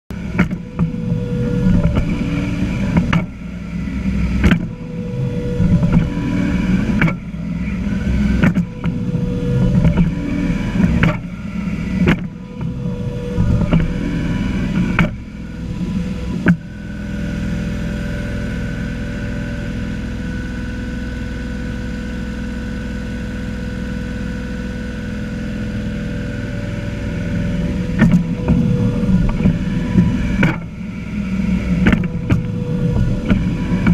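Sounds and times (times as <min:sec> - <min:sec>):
tractor diesel engine running: 0:00.1 - 0:33.9
sharp knocks and rattles: 0:08.4 - 0:11.4.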